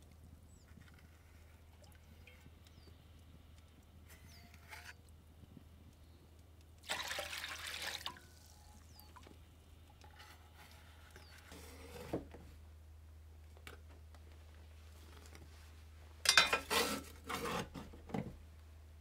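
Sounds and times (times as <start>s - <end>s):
liquid poured into metal bowl: 6.8s - 9.0s
metal shovel scraping ash: 16.3s - 17.8s.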